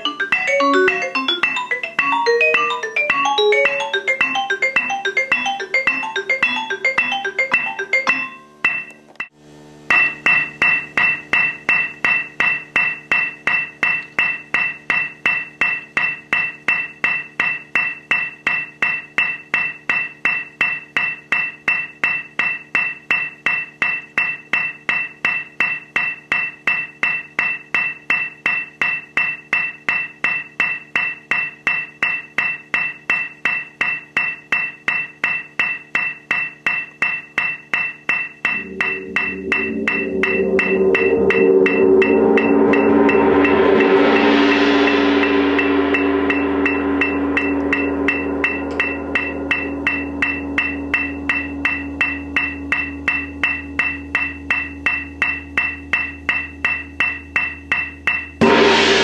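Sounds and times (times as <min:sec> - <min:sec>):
mallet roll on a cymbal: 0:38.5 - 0:59.0.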